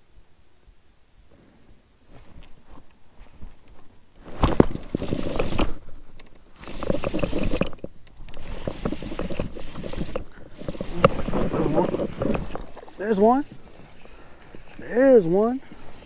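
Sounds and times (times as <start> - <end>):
fishing reel clicking and scraping: 4.8 - 16.0.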